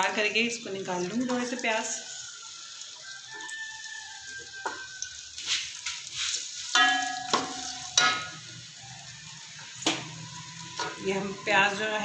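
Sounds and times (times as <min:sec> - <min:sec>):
onions sizzling in oil: 0:00.0 - 0:12.0
spoon scraping a pot: 0:10.8 - 0:11.0.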